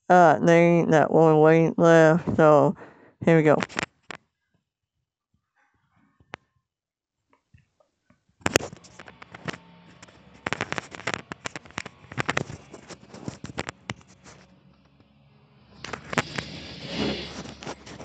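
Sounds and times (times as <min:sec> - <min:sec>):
sharp clicks and crackles: 0:03.6 - 0:04.2, 0:08.4 - 0:18.0.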